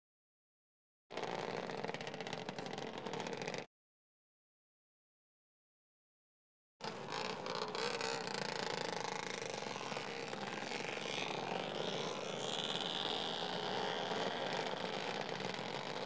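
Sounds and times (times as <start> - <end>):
quad bike engines droning: 1.1 - 3.7, 6.8 - 16.0.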